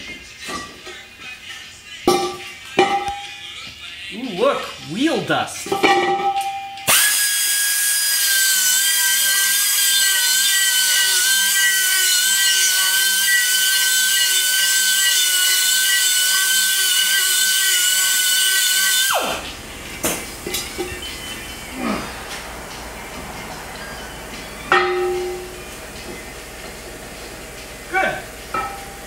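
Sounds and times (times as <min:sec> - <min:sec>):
pneumatic air tool whine: 0:06.8 - 0:20.9.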